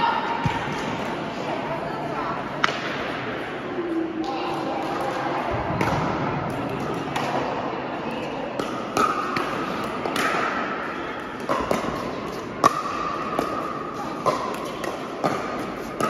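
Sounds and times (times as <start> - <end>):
paddles hitting plastic ball: 8.6 - 10.6.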